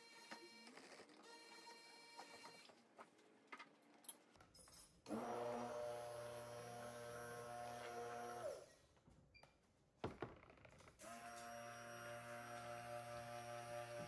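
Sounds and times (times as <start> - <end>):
stick blender motor humming: 5.1 - 8.6, 11.0 - 14.0.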